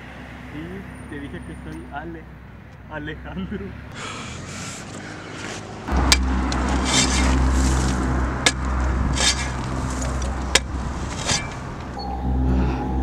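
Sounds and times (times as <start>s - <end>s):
shovel scraping pebbly dirt: 5.4s - 11.9s
steady low hum: 5.9s - 13.0s.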